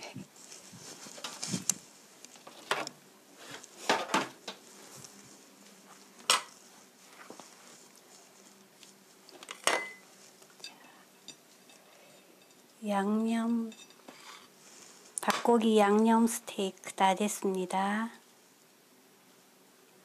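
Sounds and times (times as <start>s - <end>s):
ceramic plates clinking: 9.5s - 10.1s.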